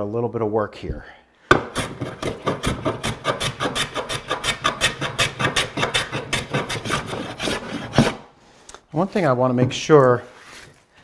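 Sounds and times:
hand plane rasping on wood: 0:01.7 - 0:08.2.

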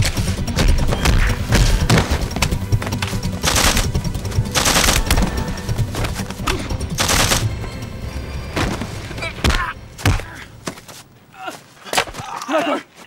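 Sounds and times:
dramatic background music: 0:00.0 - 0:10.7
automatic gunfire bursts: 0:03.4 - 0:05.2, 0:07.0 - 0:07.5
gunshots: 0:03.4 - 0:05.3, 0:06.9 - 0:07.5.

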